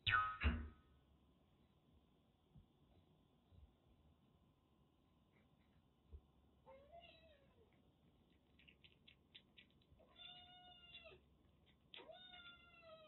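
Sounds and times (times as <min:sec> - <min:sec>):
faint clicking of kitten eating: 0:07.3 - 0:12.9.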